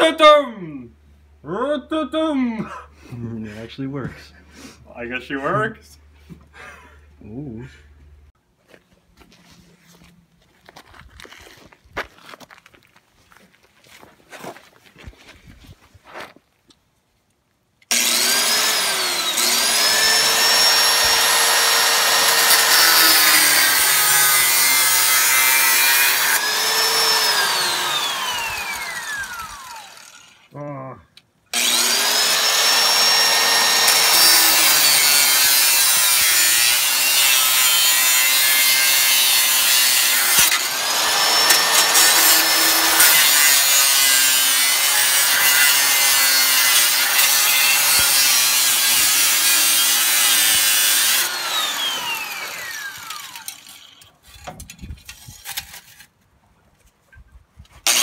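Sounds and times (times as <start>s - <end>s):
angle grinder cutting metal pipe: 17.9s - 30.5s, 31.5s - 56.0s.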